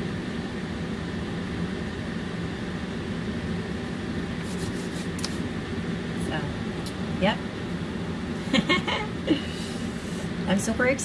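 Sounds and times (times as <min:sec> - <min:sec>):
low mechanical hum: 0:00.0 - 0:11.0
hands rubbing together: 0:04.4 - 0:05.4.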